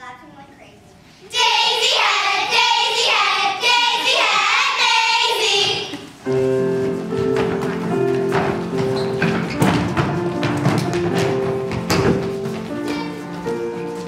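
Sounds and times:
children singing together: 0:01.3 - 0:06.2
instrumental music with held notes: 0:06.2 - 0:14.0.

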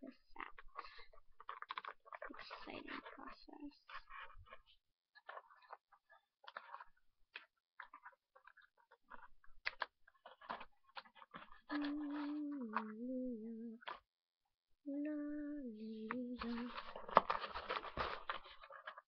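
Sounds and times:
packaging clicks and rustles: 0:00.1 - 0:12.9, 0:16.4 - 0:19.0
person humming: 0:11.7 - 0:13.9, 0:14.9 - 0:17.0.

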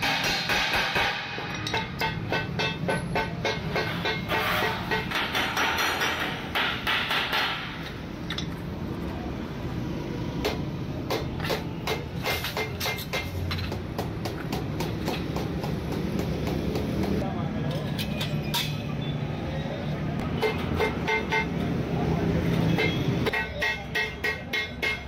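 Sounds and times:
hammer striking steel sheet: 0:00.0 - 0:07.9.

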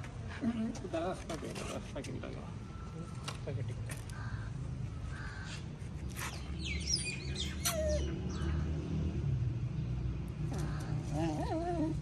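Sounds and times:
birds chirping: 0:04.0 - 0:09.0.

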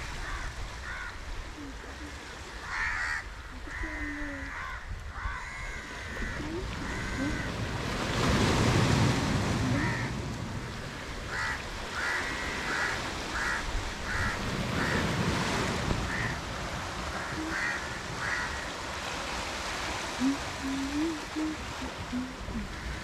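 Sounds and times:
sea surf: 0:00.0 - 0:23.0
bird calling: 0:17.1 - 0:18.6.

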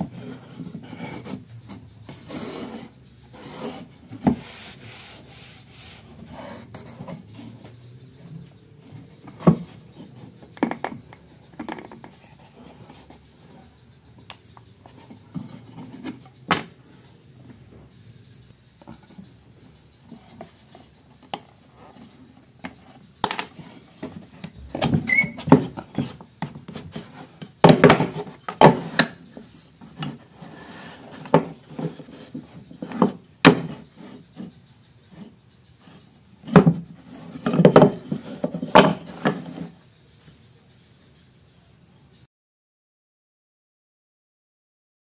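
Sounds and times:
wood scraping and sliding: 0:00.0 - 0:10.8, 0:14.8 - 0:17.9, 0:20.0 - 0:39.8
wood-on-wood knocks and clacks: 0:21.2 - 0:29.2, 0:31.2 - 0:34.5, 0:36.4 - 0:39.7.

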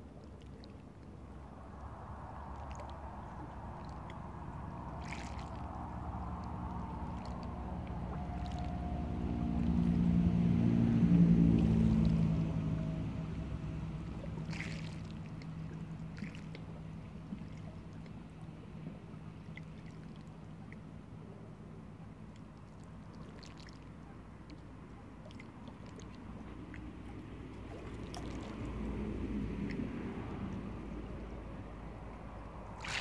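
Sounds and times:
waves lapping over pebbles: 0:00.0 - 0:20.8, 0:22.3 - 0:33.0
low engine hum: 0:00.0 - 0:33.0
low rumble: 0:00.0 - 0:33.0
small splashes: 0:00.0 - 0:33.0.

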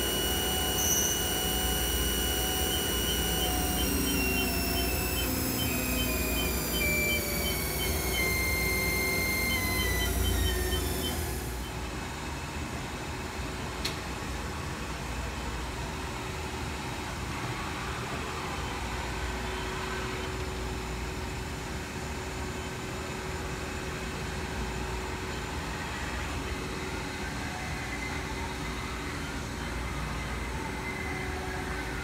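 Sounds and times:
low machine hum: 0:00.0 - 0:12.0
mill spindle whine: 0:00.0 - 0:12.1.

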